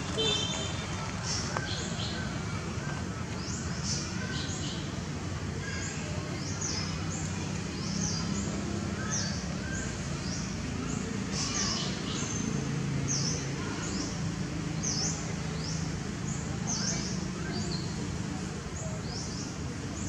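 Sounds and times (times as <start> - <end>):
birds chirping: 0.0 - 20.0
low background murmur: 0.0 - 20.0.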